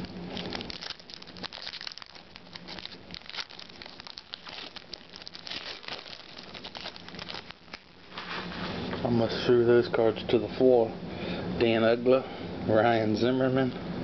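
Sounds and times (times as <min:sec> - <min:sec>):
foil wrapper crinkling and tearing: 0:00.0 - 0:08.8.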